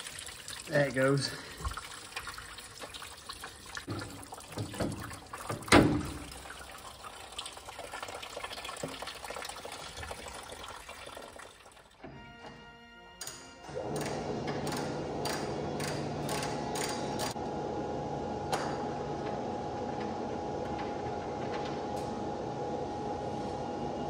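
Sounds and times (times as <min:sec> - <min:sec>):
coolant trickling and splashing: 0:00.0 - 0:12.0
hose and parts knocking: 0:03.9 - 0:06.4.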